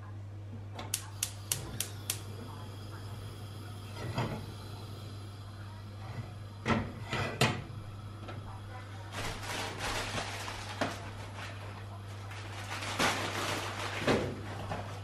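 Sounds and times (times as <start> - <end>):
steady hum: 0.0 - 12.4
gas hob igniter clicking: 0.8 - 5.2
saucepan scraping on metal supports: 6.1 - 7.6.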